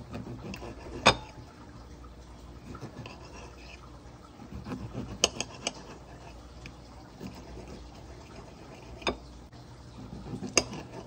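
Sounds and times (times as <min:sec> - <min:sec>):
knife cutting tomatoes: 0:00.0 - 0:01.3, 0:04.4 - 0:09.2, 0:10.0 - 0:11.0.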